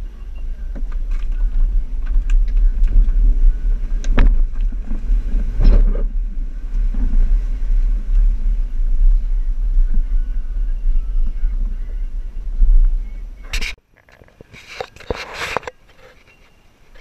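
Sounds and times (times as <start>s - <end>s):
engine and road rumble in cabin: 0.0s - 13.8s
knocks over bumps: 0.7s - 8.3s.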